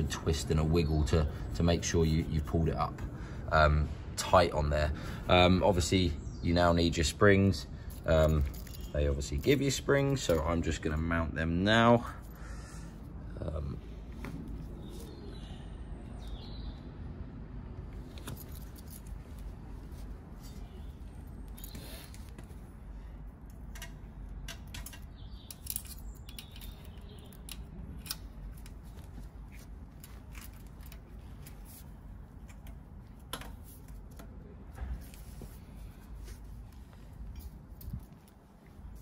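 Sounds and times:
metallic clicks and scrapes: 23.5s - 34.4s.

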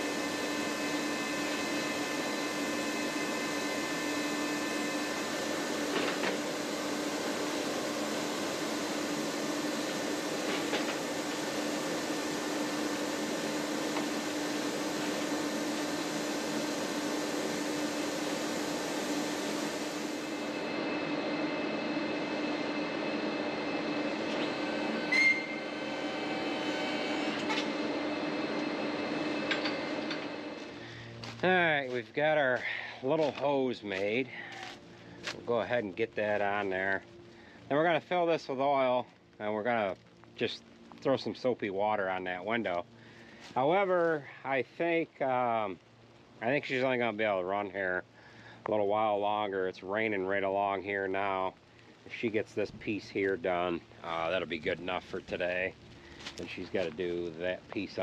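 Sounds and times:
electric motor humming: 0.0s - 31.3s.

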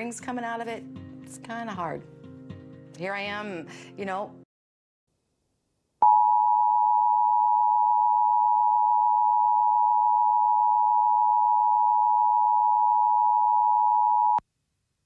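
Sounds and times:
electronic alarm tone: 6.0s - 14.4s.

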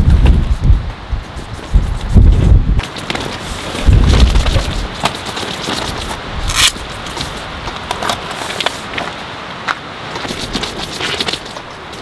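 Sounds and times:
wind gusting on microphone: 0.0s - 12.0s
tent fabric rustling: 0.4s - 7.4s.

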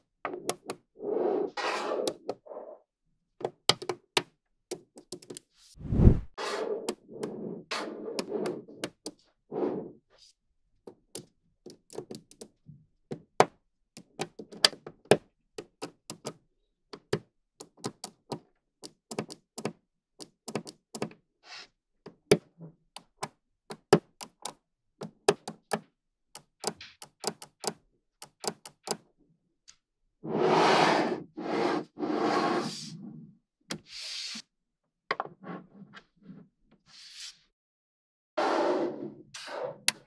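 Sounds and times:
magnetic balls clicking together: 26.4s - 29.0s.

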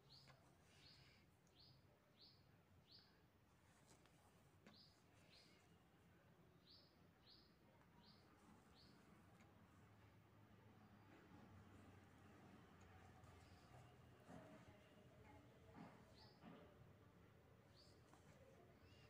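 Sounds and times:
faint bird chirps: 0.0s - 3.3s, 4.7s - 9.5s, 17.7s - 19.0s.

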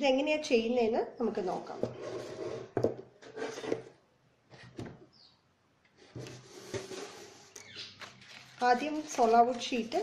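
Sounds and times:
soft rubbing and handling: 5.9s - 10.0s.

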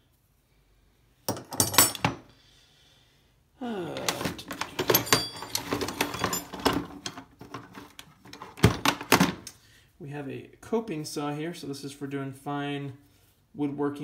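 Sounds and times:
pliers clattering on tools: 1.3s - 2.3s, 4.0s - 9.6s
metal hand tools rattling: 4.0s - 9.1s.

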